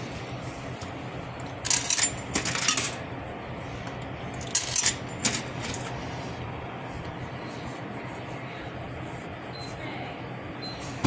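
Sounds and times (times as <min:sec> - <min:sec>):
coins clinking into coin slot: 0:01.6 - 0:03.0, 0:04.4 - 0:05.8.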